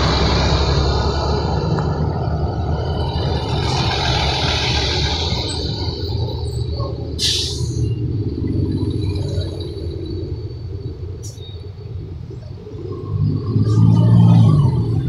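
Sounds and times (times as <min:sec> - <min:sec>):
bus engines rumbling: 0:00.0 - 0:15.0
air brake hiss: 0:07.2 - 0:07.9.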